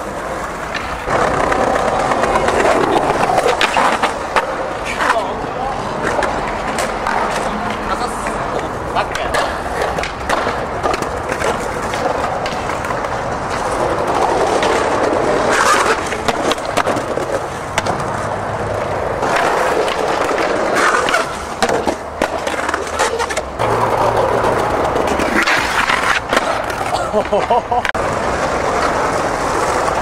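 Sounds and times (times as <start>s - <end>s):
skateboard wheels rolling on stone: 0.0s - 30.0s.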